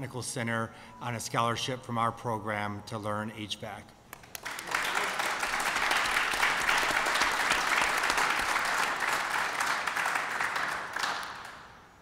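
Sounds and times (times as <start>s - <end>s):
audience applauding: 4.2s - 11.8s.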